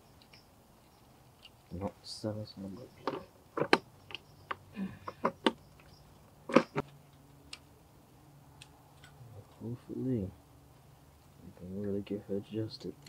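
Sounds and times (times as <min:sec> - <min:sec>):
metallic clicks and clinks: 0:00.0 - 0:07.2.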